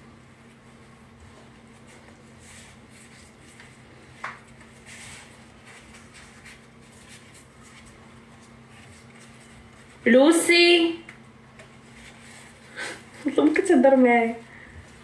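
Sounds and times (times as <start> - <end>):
steady low hum: 0.0 - 15.0
hands rubbing and rustling: 0.4 - 10.0.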